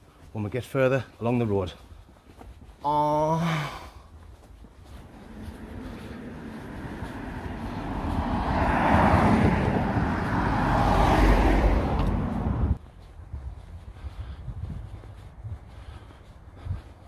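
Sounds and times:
road traffic passing: 4.2s - 17.0s.

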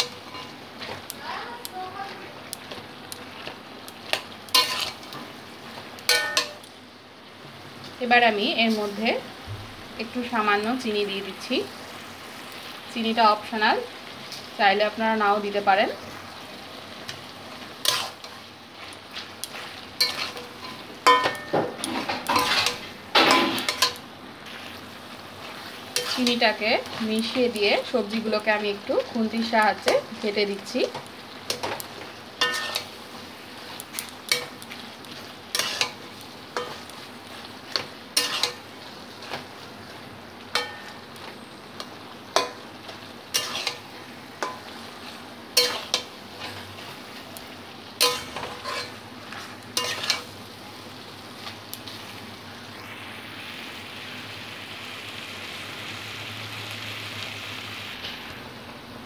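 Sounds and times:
vegetables sizzling: 0.0s - 59.0s
metal spatula scraping a wok: 4.5s - 5.1s, 17.8s - 18.4s, 19.5s - 24.6s, 25.5s - 27.2s, 32.4s - 33.0s, 33.6s - 36.0s, 37.7s - 38.6s, 43.3s - 43.8s, 48.0s - 50.3s.

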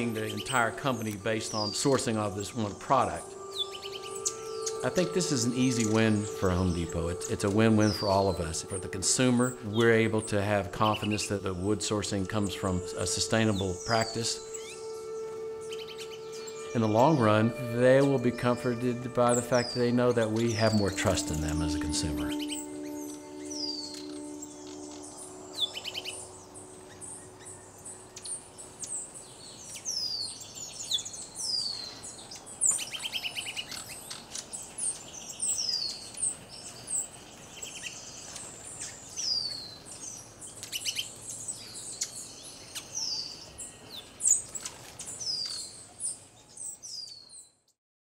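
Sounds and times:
low held music chord: 0.0s - 29.2s
birds singing in chorus: 0.0s - 47.8s.

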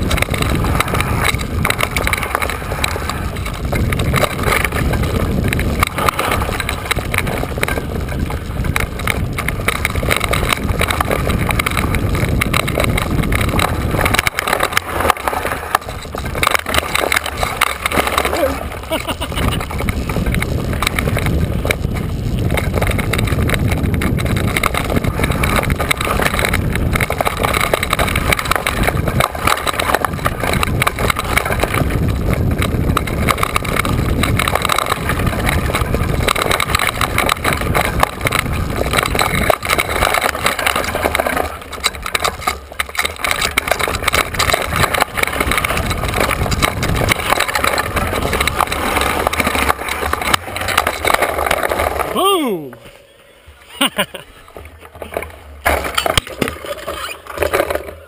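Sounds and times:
wind buffeting microphone: 0.0s - 52.2s
bike rattling over ground: 0.0s - 58.0s.

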